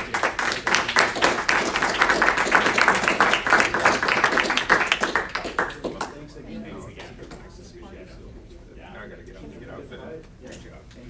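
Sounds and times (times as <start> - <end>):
people applauding: 0.0 - 7.2.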